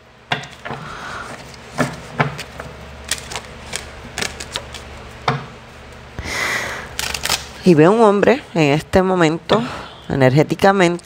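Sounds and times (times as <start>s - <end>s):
cards being shuffled: 1.3s - 5.0s, 7.0s - 7.6s.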